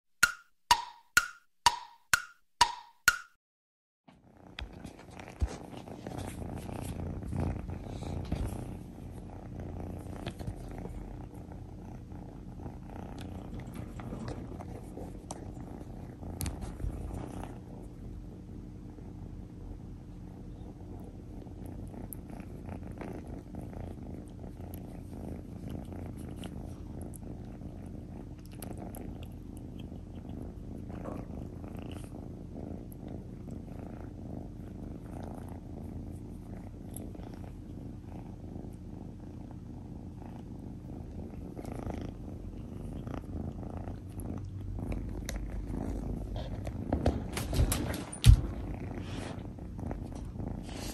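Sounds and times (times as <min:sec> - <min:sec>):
kitten purring: 0:04.1 - 0:50.9
small clicks and rustles: 0:09.9 - 0:11.1, 0:13.1 - 0:17.6, 0:46.3 - 0:50.4.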